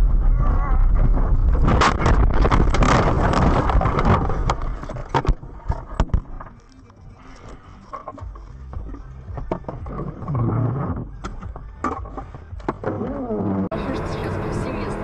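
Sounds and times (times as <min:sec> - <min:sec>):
car crunching and scraping through snow: 0:01.2 - 0:06.0.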